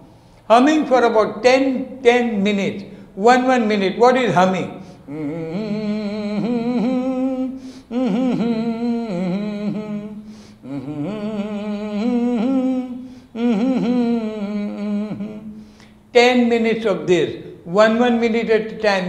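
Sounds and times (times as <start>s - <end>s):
short breaths: 0.0s - 0.5s, 2.9s - 3.2s, 4.8s - 5.1s, 7.6s - 7.9s, 10.2s - 10.6s, 13.0s - 13.4s, 15.5s - 16.1s
man humming: 5.0s - 15.8s.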